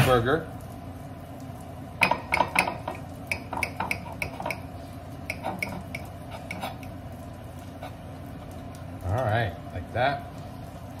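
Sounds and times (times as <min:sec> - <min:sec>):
knife clinking and scraping on dish: 0:03.3 - 0:04.7, 0:05.3 - 0:06.9.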